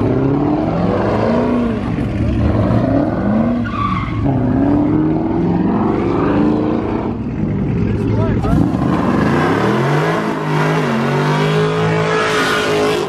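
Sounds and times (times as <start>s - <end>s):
car engine revving hard: 8.4s - 13.0s.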